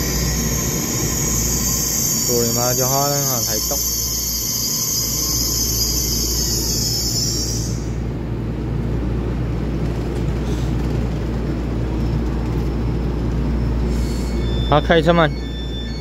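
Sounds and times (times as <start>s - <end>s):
high-pitched steady ringing: 0.0s - 7.7s, 14.2s - 16.0s
train low rumble: 0.0s - 16.0s.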